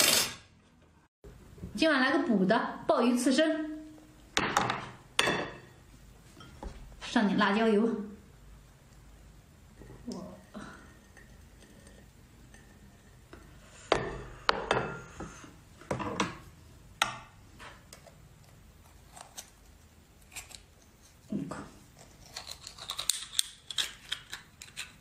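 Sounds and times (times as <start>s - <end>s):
tableware clicking and knocking: 4.4s - 5.8s.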